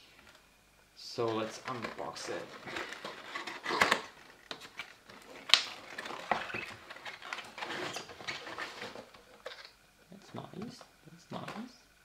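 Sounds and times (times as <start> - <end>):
cardboard box being opened: 1.4 - 9.7.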